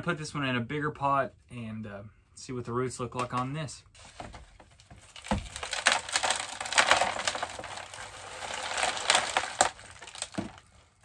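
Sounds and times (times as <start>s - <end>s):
soil and stones tumbling onto tray: 4.1s - 10.8s.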